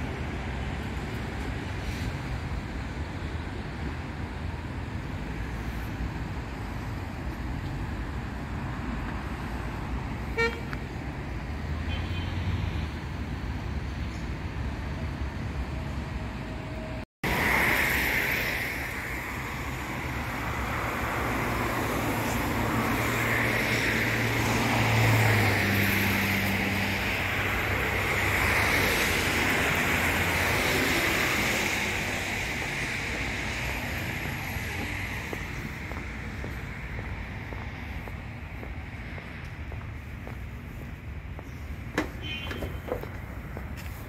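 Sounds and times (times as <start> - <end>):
city traffic noise: 0.0 - 44.0.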